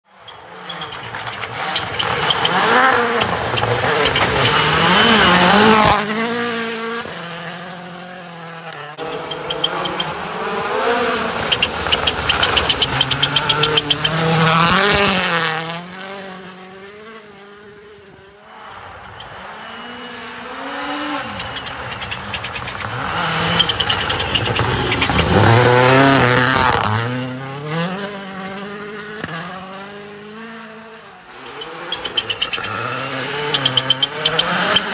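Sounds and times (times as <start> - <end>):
rally car engine revving: 0.2 - 34.9
engine crackle: 9.0 - 15.5, 18.6 - 27.2.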